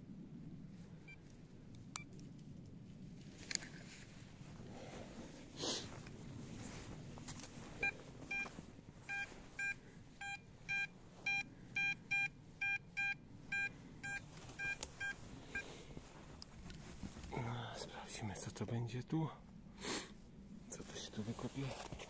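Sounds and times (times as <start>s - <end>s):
metal detector beeps: 7.8s - 8.5s, 9.1s - 15.7s.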